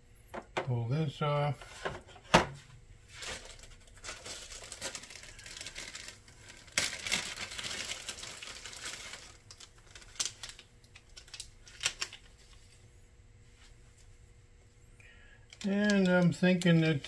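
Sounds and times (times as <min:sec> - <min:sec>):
packaging rustling and crinkling: 0:03.1 - 0:12.8.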